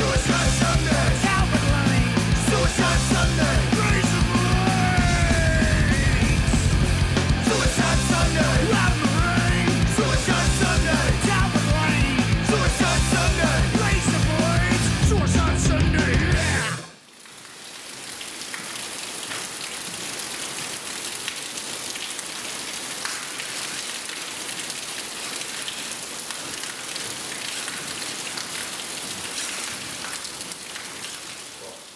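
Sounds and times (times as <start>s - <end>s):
steady rain: 0.0s - 15.1s, 16.1s - 31.9s
punk band music: 0.0s - 16.8s.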